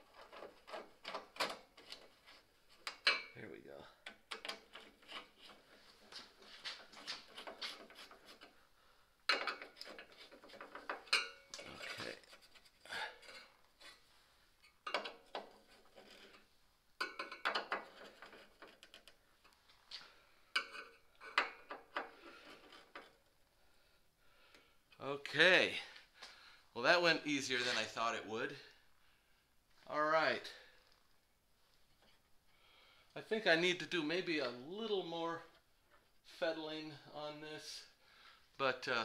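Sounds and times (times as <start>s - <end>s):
screwdriver clicks and scrapes on metal: 0.0s - 3.4s, 4.0s - 5.7s, 6.5s - 8.6s, 9.3s - 14.0s, 14.6s - 16.4s, 17.0s - 19.6s.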